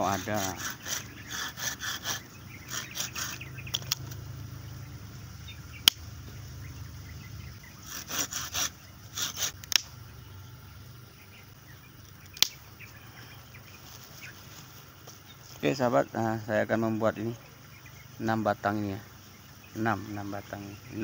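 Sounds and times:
pruning saw rasping through stem: 0:00.0 - 0:04.2, 0:07.8 - 0:09.9
sharp click: 0:05.8 - 0:06.0, 0:09.6 - 0:10.0, 0:12.1 - 0:12.6.

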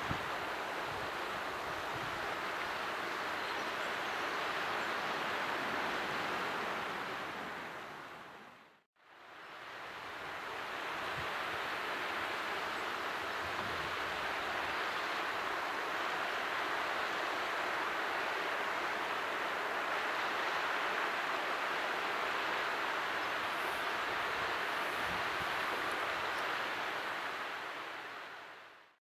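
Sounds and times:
water rushing down a cascade: 0:00.0 - 0:08.4, 0:09.1 - 0:29.0.

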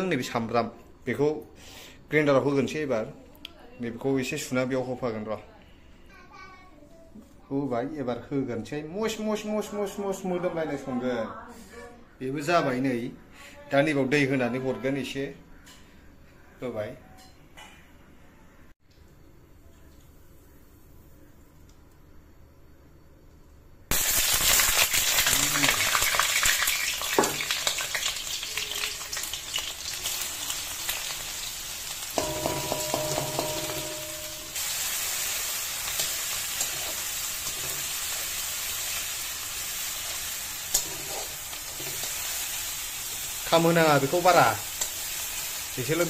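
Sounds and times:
seeds sizzling in hot oil: 0:23.9 - 0:46.0
spatula scraping wok: 0:32.0 - 0:45.8.

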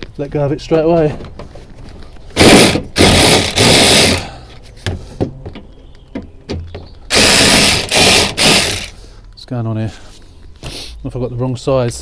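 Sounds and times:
cordless power driver bursts: 0:02.4 - 0:04.3, 0:07.1 - 0:09.0.

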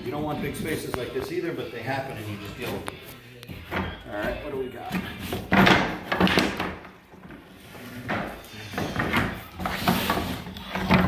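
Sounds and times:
wooden boards knocking together: 0:05.0 - 0:07.4
boards dragging over paper: 0:07.3 - 0:11.0.

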